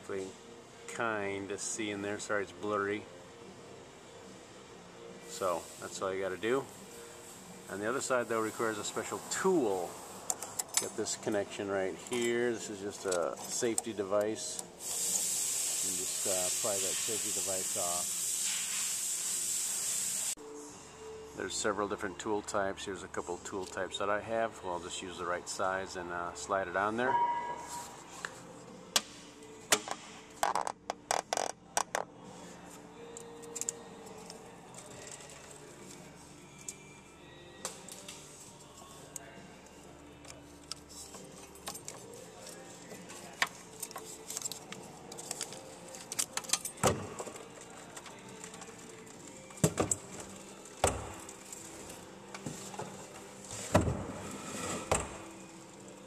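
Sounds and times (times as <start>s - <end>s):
fuel spraying hiss: 14.8s - 20.4s.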